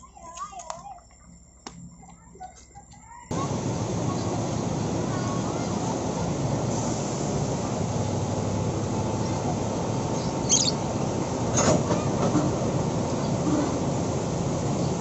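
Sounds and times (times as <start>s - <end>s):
diesel engines running: 3.3s - 15.0s.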